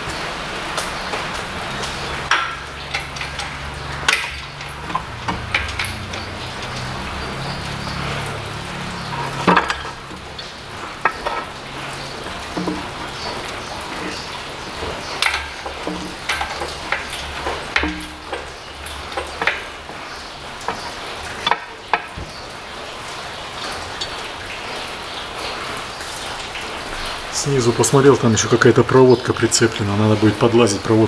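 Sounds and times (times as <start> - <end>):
clicks and knocks of metal and plastic: 0.0 - 22.5.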